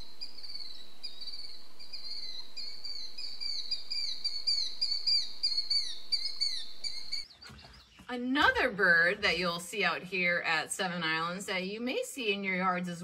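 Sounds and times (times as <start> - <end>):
bird calling shrill notes: 0.0 - 7.3.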